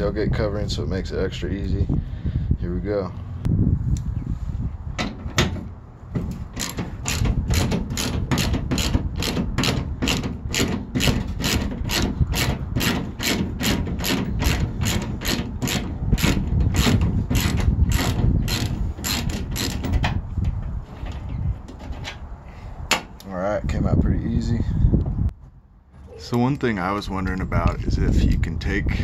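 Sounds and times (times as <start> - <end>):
socket ratchet clicking: 6.6 - 19.9.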